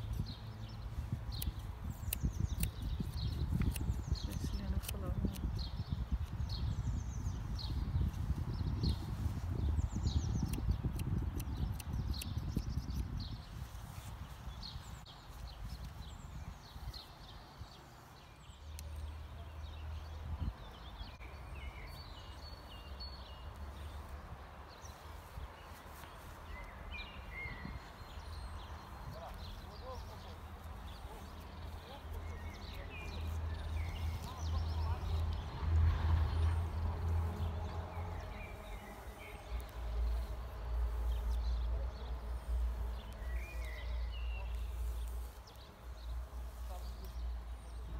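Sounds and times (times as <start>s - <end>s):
garden birds chirping: 0.0s - 47.9s
wind rumbling on microphone: 0.0s - 47.9s
low outdoor rumble: 27.8s - 47.9s.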